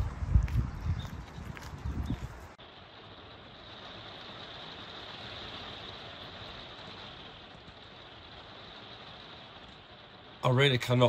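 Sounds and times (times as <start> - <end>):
rain on vehicle roof: 2.5 - 11.0.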